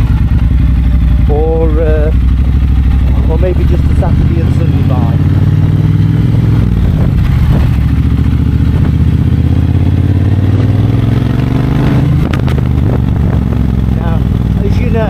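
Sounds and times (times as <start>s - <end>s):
motorcycle engine and exhaust: 0.0s - 15.0s.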